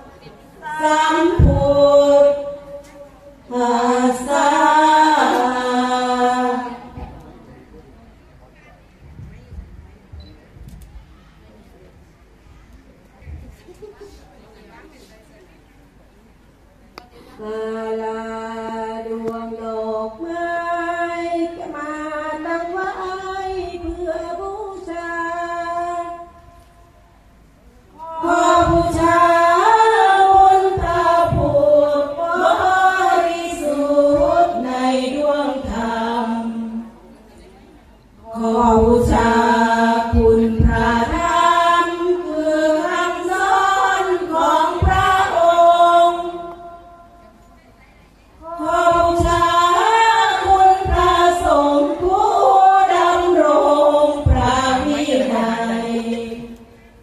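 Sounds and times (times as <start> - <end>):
women chanting together: 0.0 - 2.8, 3.5 - 7.3, 28.0 - 37.0, 38.2 - 47.0, 48.4 - 56.8.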